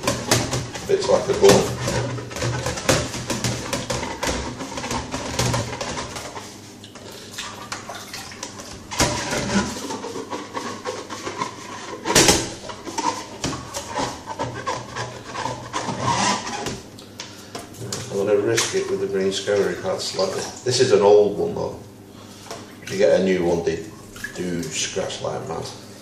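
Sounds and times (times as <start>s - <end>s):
scouring pad scrubbing plastic tube: 0.0s - 6.7s, 8.4s - 16.8s.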